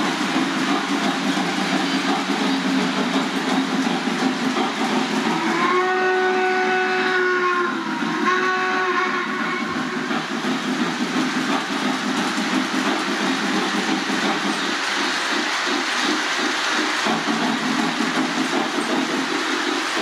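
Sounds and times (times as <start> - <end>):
model train wheels rumbling: 0.0 - 20.0
electronic steam whistle: 5.2 - 10.6.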